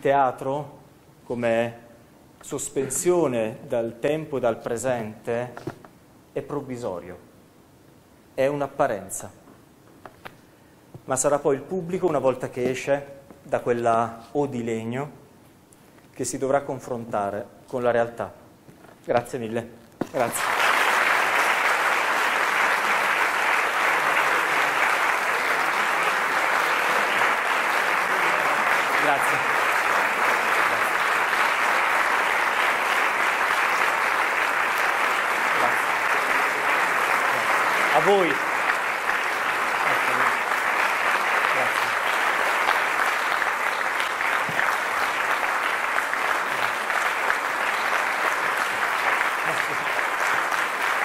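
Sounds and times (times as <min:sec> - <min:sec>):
audience applauding: 0:20.2 - 0:51.0.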